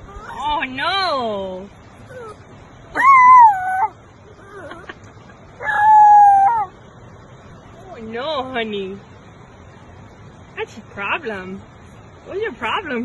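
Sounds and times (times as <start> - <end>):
puppy howling: 2.0 - 4.9, 5.6 - 6.8.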